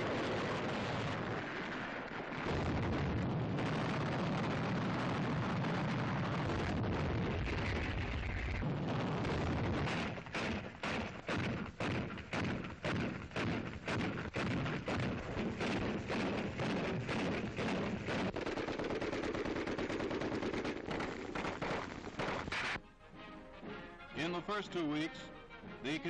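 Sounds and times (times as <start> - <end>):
gunfire and explosions: 0.0 - 22.8
separate gunshots: 8.6 - 22.8.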